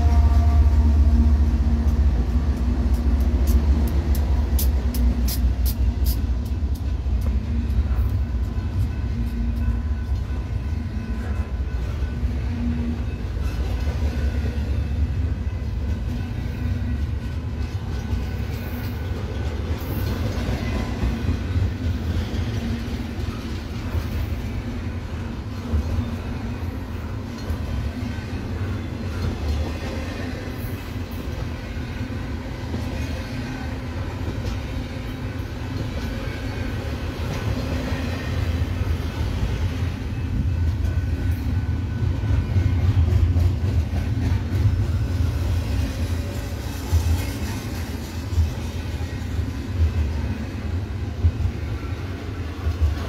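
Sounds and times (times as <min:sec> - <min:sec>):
freight train rolling past: 0:00.0 - 0:53.0
wheels rumbling on rails: 0:00.0 - 0:53.0.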